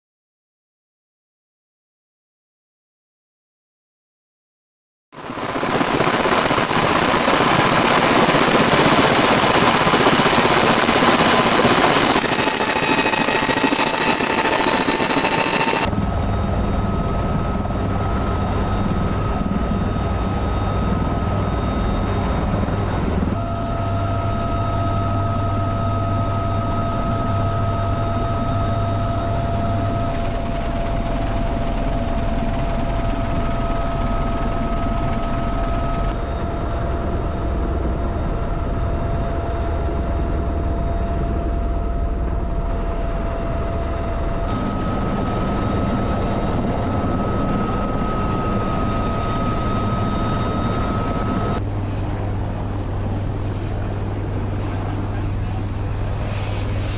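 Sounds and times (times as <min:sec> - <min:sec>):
helicopter rotor and turbine noise: 0:05.2 - 0:56.9
high turbine whine: 0:05.2 - 0:56.9.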